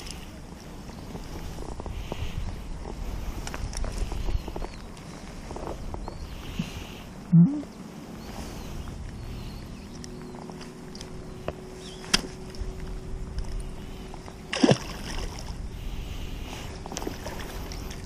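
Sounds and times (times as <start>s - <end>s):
fish splashing into water: 14.5s - 15.5s.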